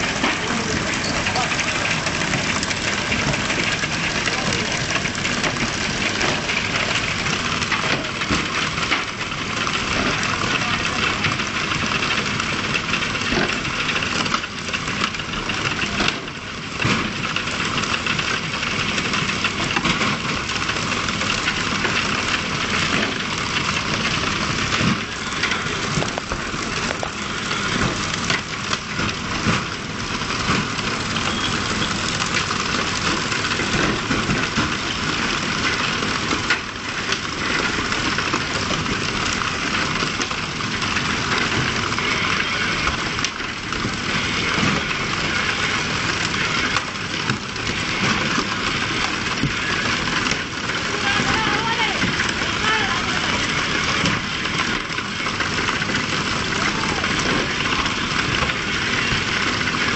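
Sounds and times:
boat engine running: 0.0s - 59.9s.

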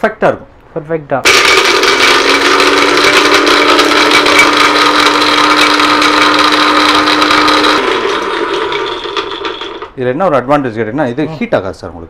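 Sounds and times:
almonds rattling in blender jar: 1.3s - 10.0s
electric blender whining: 1.3s - 10.0s.

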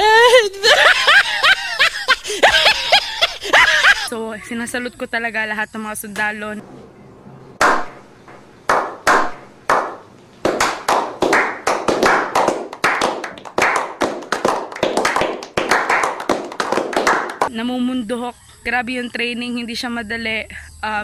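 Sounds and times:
people clapping: 7.6s - 8.0s, 8.7s - 17.5s.

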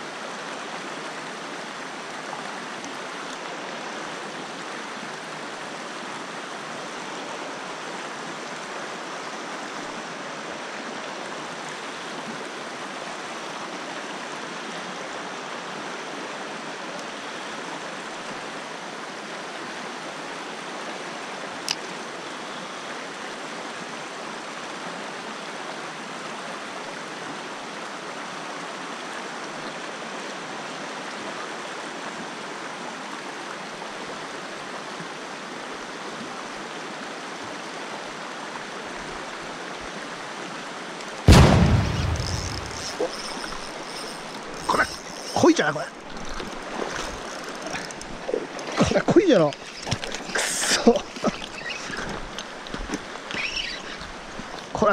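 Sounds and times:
river flowing over stones: 0.0s - 54.9s
sharp click: 41.3s - 45.4s.

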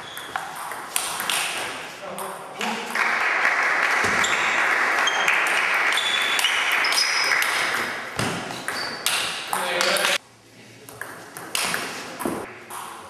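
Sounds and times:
high shoe squeaks: 0.0s - 0.4s, 6.0s - 7.3s, 8.5s - 9.3s.

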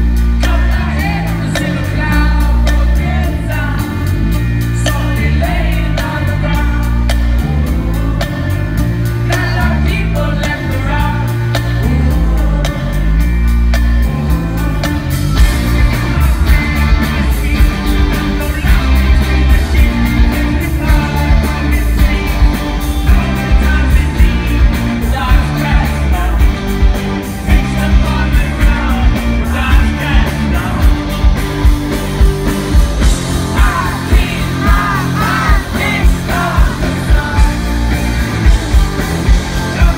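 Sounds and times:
bass: 0.0s - 39.9s
electric guitar: 0.0s - 39.9s
man singing: 0.1s - 31.4s, 33.0s - 39.9s
drums pounding beat: 14.4s - 39.9s.

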